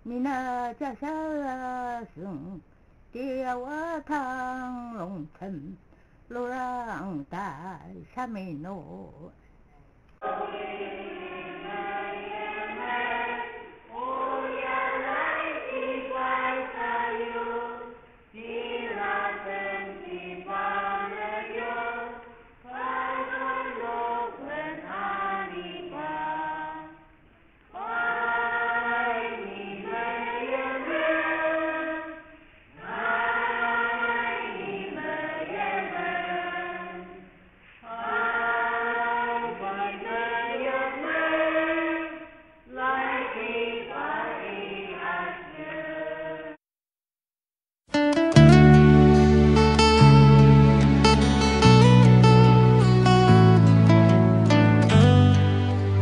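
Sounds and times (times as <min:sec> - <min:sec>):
choir singing: 0:10.2 - 0:27.1, 0:27.7 - 0:46.6.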